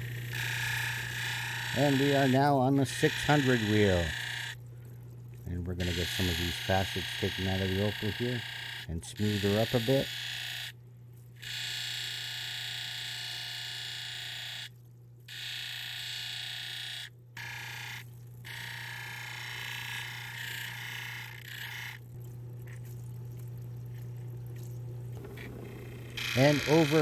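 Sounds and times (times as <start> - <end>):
motor humming: 0.0 - 10.8, 11.4 - 27.0
stone grinding on a wheel: 0.3 - 4.6, 25.2 - 27.0.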